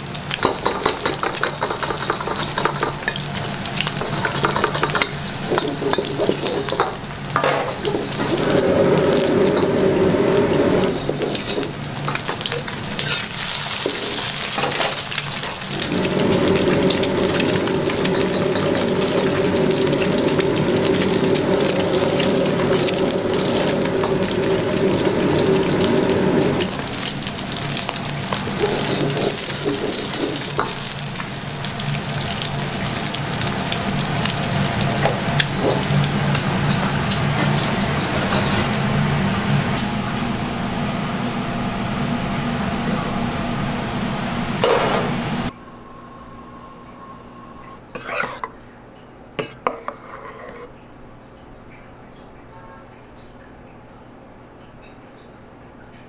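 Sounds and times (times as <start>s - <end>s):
eggs sizzling in hot oil: 0.0s - 39.8s
low rumble: 8.2s - 11.0s, 15.8s - 27.1s.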